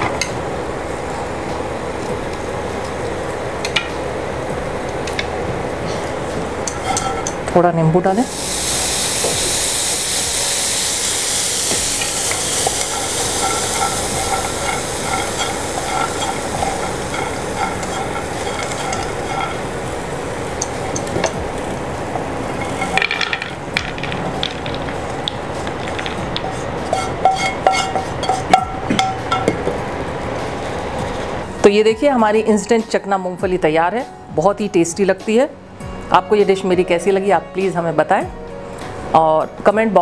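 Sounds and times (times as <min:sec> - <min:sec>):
peanuts sizzling in a pan: 0:08.1 - 0:29.7
spatula scraping a pan: 0:12.0 - 0:19.8, 0:26.4 - 0:28.5.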